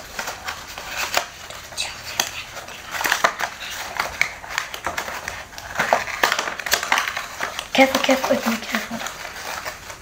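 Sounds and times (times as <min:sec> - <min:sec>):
cardboard crackling and tearing: 0:00.0 - 0:10.0.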